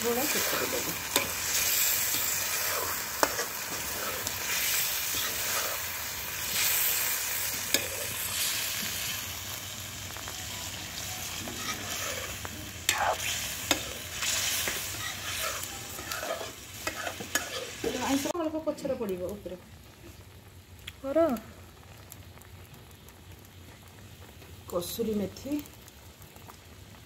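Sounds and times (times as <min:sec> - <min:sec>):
curry sizzling: 0:00.0 - 0:27.0
metal ladle scraping pan: 0:11.4 - 0:18.1.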